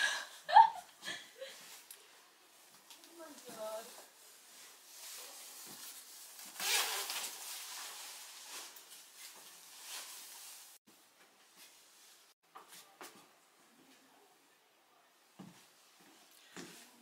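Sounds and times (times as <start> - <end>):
clothing rustling: 1.4 - 10.8.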